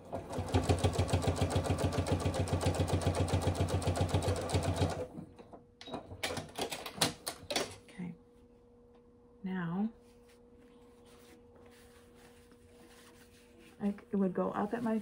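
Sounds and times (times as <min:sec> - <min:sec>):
fabric rustling: 0:10.0 - 0:15.0.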